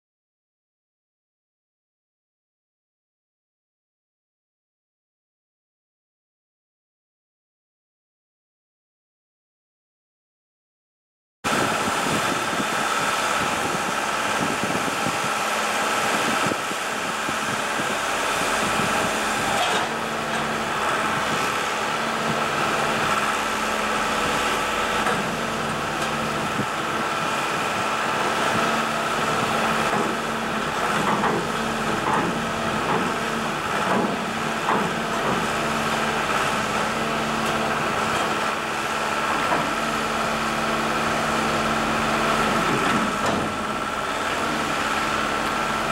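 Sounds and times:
diesel machinery running: 11.5 - 45.9.

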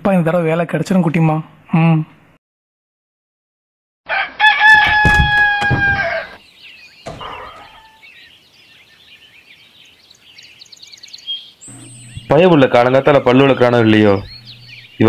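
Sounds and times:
rooster crowing: 4.1 - 6.4, 7.1 - 8.0
small birds chirping: 6.0 - 15.0.

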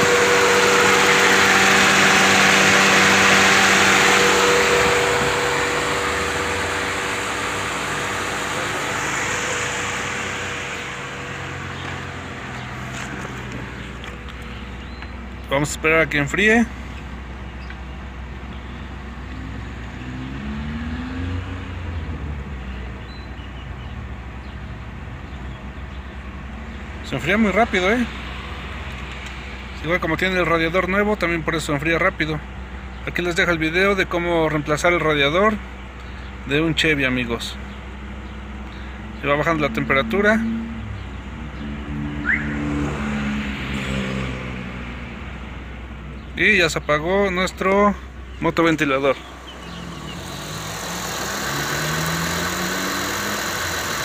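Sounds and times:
radiator fan rushing air: 0.0 - 14.0
low hum rising in pitch: 0.0 - 15.2, 41.6 - 45.3
car engine idling: 0.0 - 19.9, 45.0 - 54.0.

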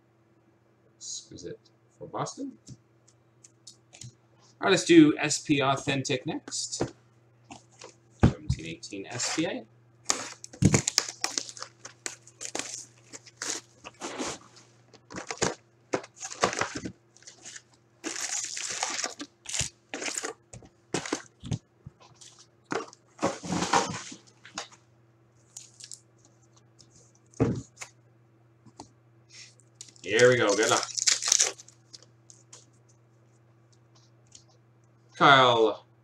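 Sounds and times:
faint steady hum: 0.0 - 36.0
wrappers tearing and crinkling: 9.2 - 14.2, 15.0 - 20.4, 21.0 - 21.6, 25.4 - 26.0, 29.7 - 32.6.

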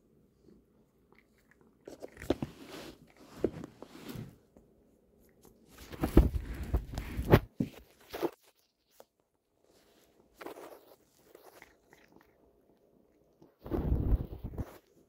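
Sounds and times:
cat crunching dry treats: 1.1 - 3.3, 10.4 - 13.4.

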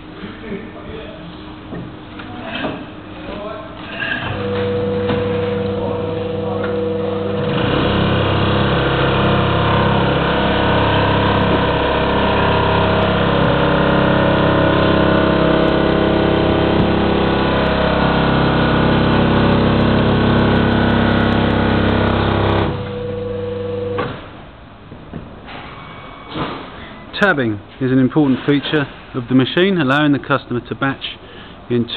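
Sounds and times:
paper counting machine humming: 4.3 - 24.0.

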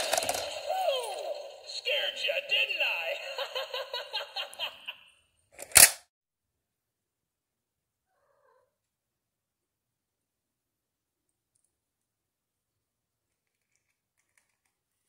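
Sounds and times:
toy warbling chattering voice: 0.0 - 3.6
sharp click: 5.6 - 6.0.

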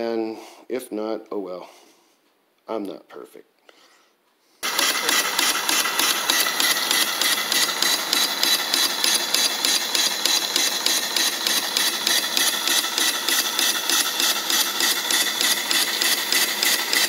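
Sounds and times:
steam engine exhaust puffing: 4.6 - 17.0.

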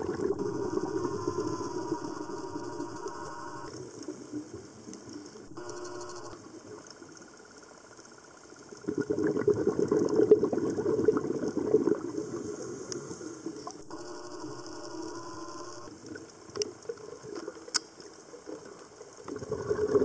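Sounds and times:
faint steady background: 0.0 - 8.8, 12.5 - 16.1.

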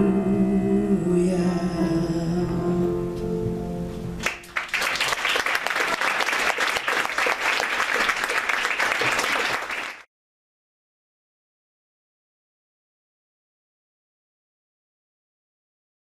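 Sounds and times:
audience applauding: 4.2 - 10.1.

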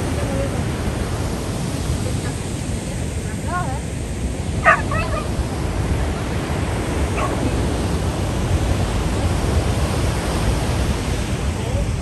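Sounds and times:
wind: 0.0 - 12.0
dog barking: 4.6 - 5.4, 7.1 - 7.6.

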